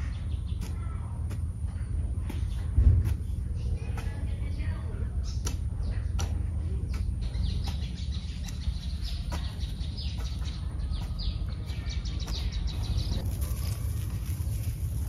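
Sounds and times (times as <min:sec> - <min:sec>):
ducklings peeping: 0:05.2 - 0:13.9.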